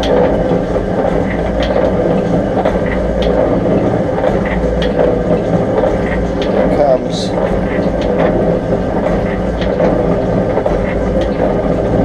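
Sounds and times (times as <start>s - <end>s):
pump mechanical drone: 0.0s - 12.0s
sharp clacks: 0.0s - 12.0s.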